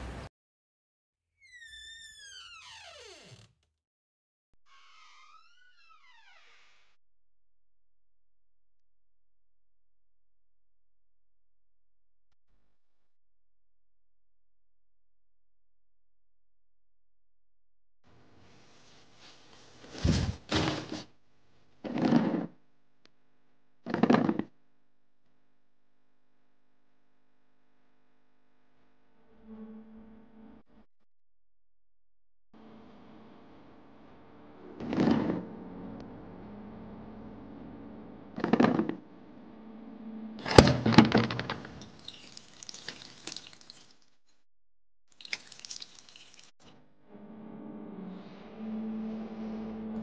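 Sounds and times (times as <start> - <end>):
plastic chair pulled out: 20.0 - 21.1, 34.8 - 35.4, 40.4 - 42.3
low room hum: 32.6 - 43.5
faint scattered crackles: 41.2 - 44.1, 45.1 - 46.7.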